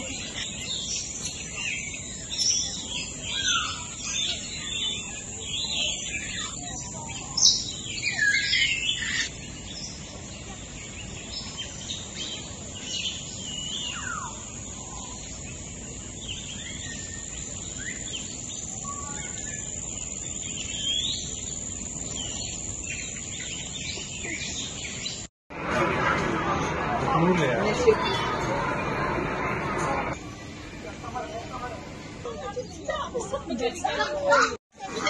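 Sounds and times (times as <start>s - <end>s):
birds chirping and calling: 0.0s - 25.3s
steady high hiss: 0.0s - 35.0s.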